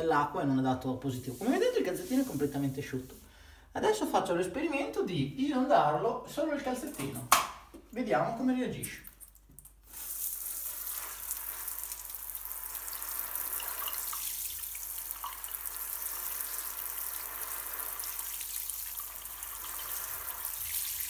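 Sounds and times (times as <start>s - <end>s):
shower spray hissing: 1.2s - 3.3s, 9.8s - 21.0s
water splashing on shower tray: 9.2s - 21.0s.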